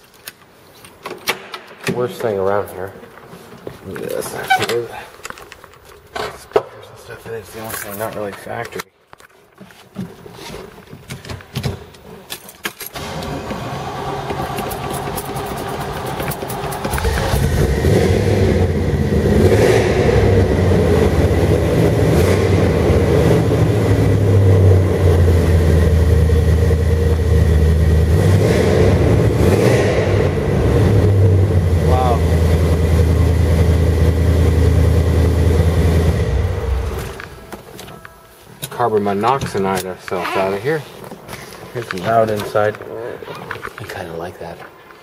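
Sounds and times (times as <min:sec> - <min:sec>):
car engine cranking and running: 0:12.9 - 0:37.5.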